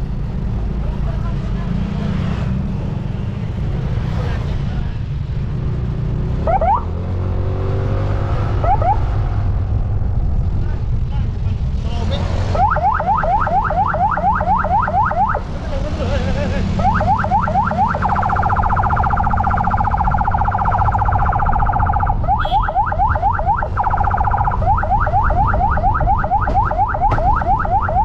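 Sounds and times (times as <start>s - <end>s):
wind: 0.0s - 28.0s
electronic siren whooping and warbling: 6.4s - 7.0s, 8.3s - 9.1s, 12.5s - 15.4s, 16.7s - 28.0s.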